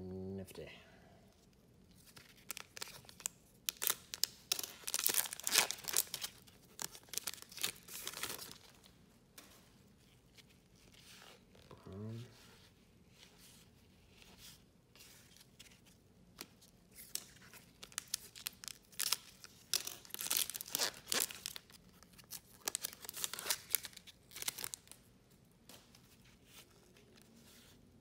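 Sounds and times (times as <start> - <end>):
wrapper tearing and crinkling: 2.0 - 8.8, 17.0 - 25.0.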